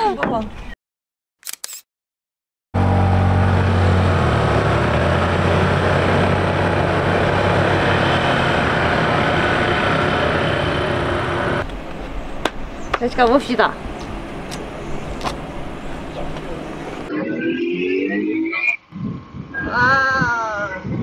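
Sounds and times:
wind rush over microphone: 18.9 - 21.0.

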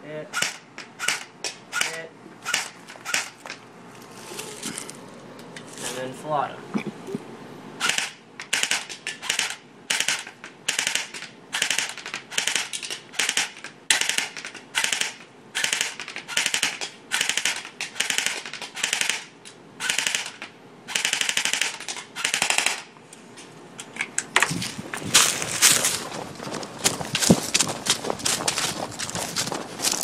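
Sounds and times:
airsoft gun firing bursts: 0.3 - 3.4, 7.8 - 22.9.

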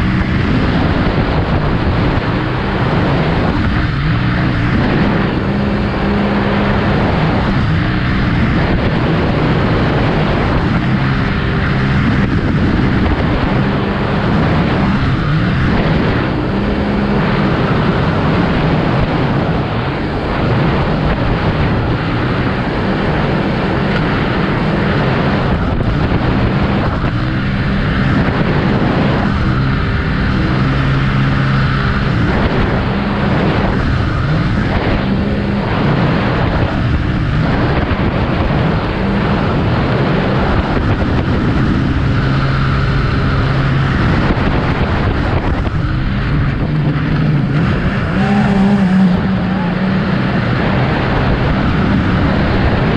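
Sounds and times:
boat engine running hard: 0.0 - 52.9
wind: 0.0 - 52.9.

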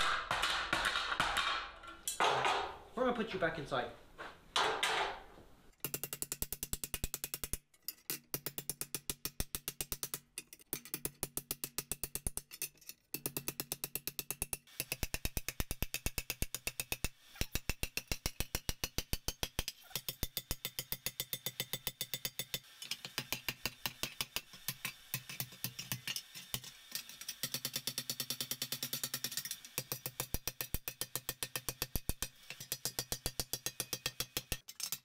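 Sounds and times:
hammer striking steel on anvil: 13.2 - 35.0.

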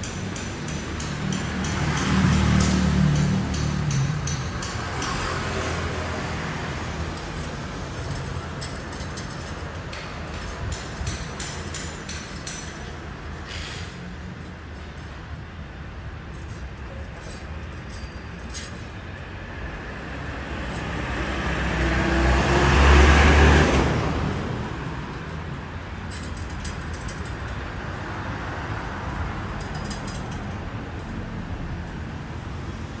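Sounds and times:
background traffic: 0.0 - 33.0
motor vehicle passing by: 0.9 - 9.4, 19.8 - 25.6.

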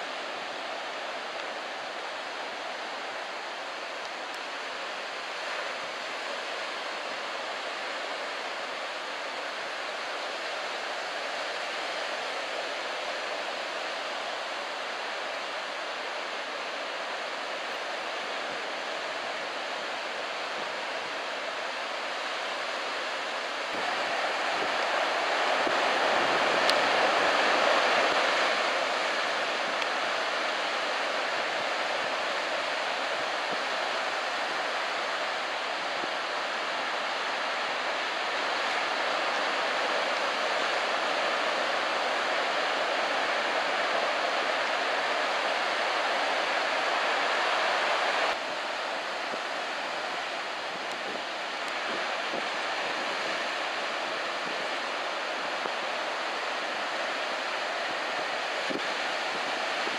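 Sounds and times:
ocean waves breaking on beach: 0.0 - 59.9.

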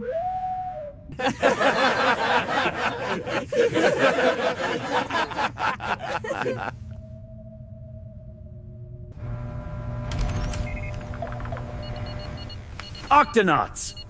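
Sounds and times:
cartoon characters laughing: 1.2 - 6.8.

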